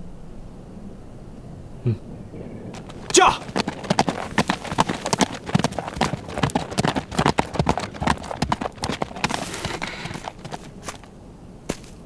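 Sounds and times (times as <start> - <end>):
horse hoofbeats: 2.7 - 11.1.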